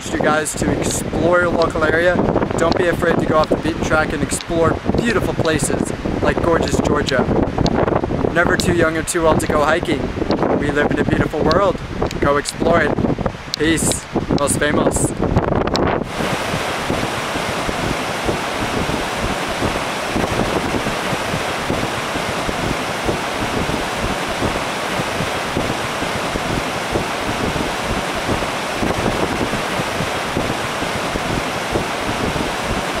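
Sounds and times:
stream rushing over rocks: 16.0 - 33.0.

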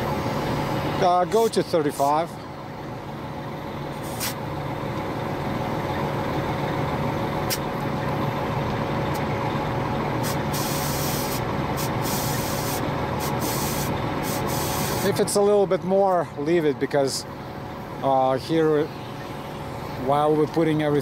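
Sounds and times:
air compressor humming: 0.0 - 15.5, 16.2 - 21.0
air hissing: 4.0 - 4.4, 10.2 - 15.1.

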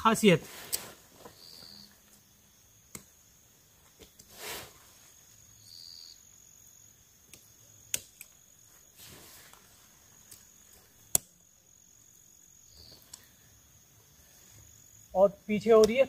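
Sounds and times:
tent fabric rustling: 0.0 - 2.1, 3.7 - 5.4, 8.6 - 11.0
cricket trill: 0.0 - 16.0
tent poles clicking: 0.5 - 1.7, 3.8 - 4.3, 7.2 - 8.5, 9.1 - 11.4, 12.8 - 13.3.

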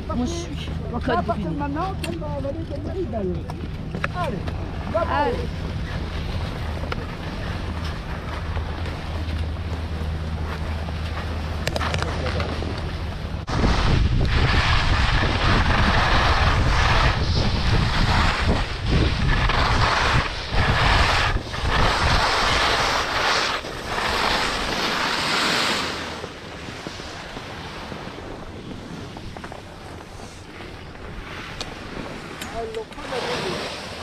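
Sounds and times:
wind buffeting microphone: 0.0 - 34.0
skis hissing over snow: 13.5 - 28.1, 33.0 - 34.0.

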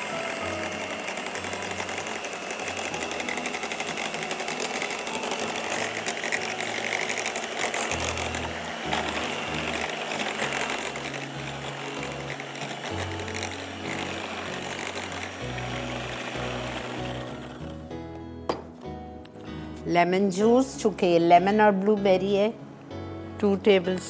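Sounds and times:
electric hand mixer whisking: 0.0 - 18.0.

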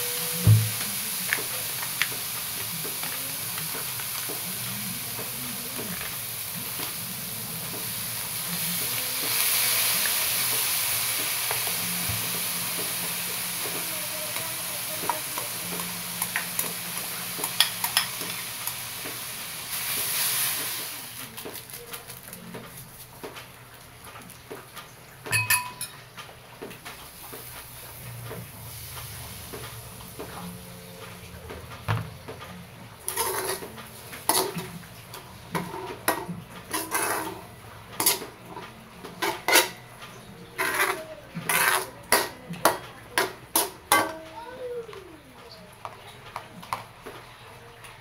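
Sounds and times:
spatula scraping a metal wok: 33.0 - 34.7, 35.6 - 38.3, 40.6 - 42.3.

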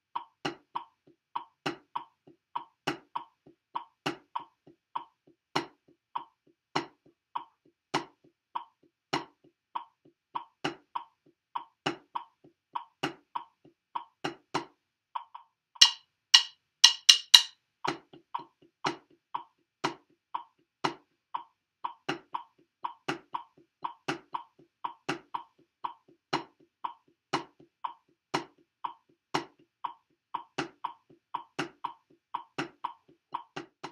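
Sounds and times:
drumsticks tapping rubber practice pad: 15.8 - 17.5.

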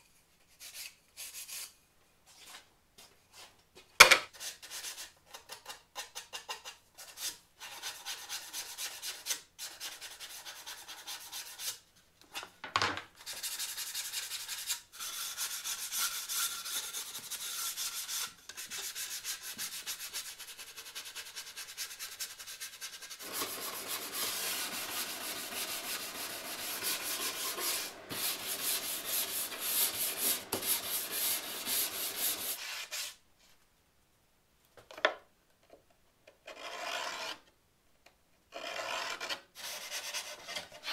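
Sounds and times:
hand sanding wood: 13.3 - 33.2.

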